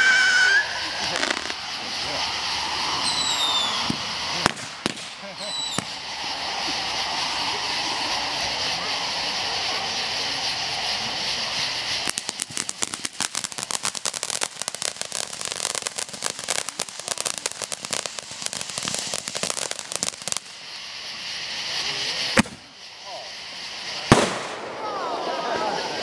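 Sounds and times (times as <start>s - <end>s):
firework crackling pops: 0.0s - 26.0s
firework hissing: 0.0s - 26.0s.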